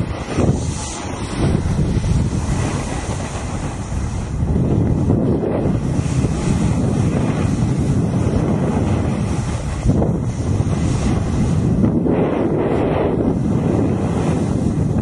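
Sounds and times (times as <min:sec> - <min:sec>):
snowboard scraping on snow: 0:00.0 - 0:14.9
wind buffeting microphone: 0:00.0 - 0:15.0.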